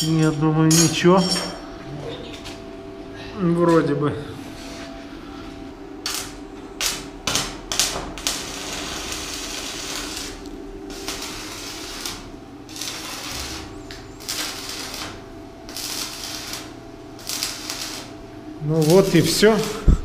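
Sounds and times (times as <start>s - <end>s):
welding arc crackling and hissing: 6.0s - 20.0s.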